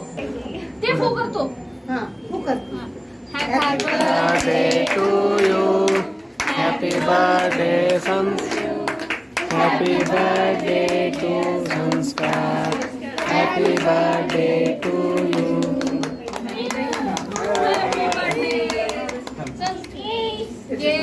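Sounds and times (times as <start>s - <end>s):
group singing: 3.3s - 19.4s, 20.7s - 21.0s
hands clapping: 3.6s - 20.0s.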